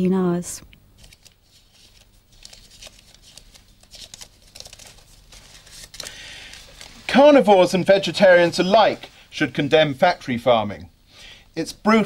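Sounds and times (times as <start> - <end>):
packet crinkling and rustling: 1.0 - 9.3.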